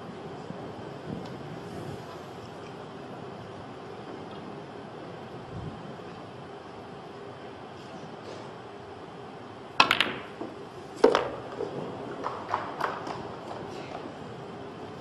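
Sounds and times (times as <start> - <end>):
cue striking ball: 9.8 - 13.6
pool balls clicking: 9.8 - 14.1.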